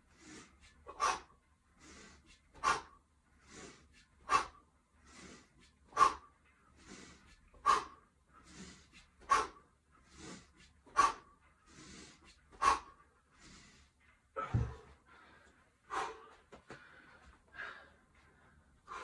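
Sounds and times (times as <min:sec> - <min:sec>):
sharp forceful breaths: 0:00.0 - 0:19.0
kettlebell thud on mat: 0:14.4 - 0:14.9.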